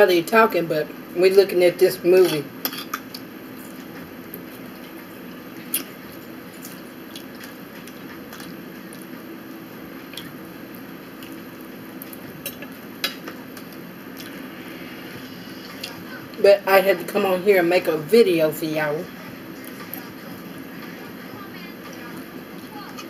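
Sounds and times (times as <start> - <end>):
faint steady hum: 0.0 - 23.0
soft chewing: 3.0 - 14.4.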